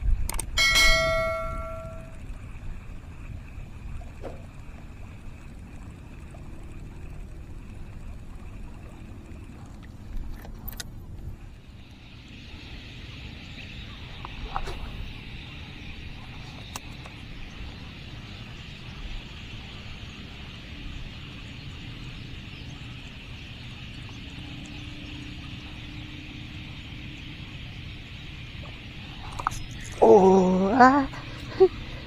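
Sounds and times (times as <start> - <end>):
steady high drone: 0.0 - 10.4, 11.0 - 32.0
wind rumbling on microphone: 0.0 - 32.0
sharp clicks: 0.2 - 0.6.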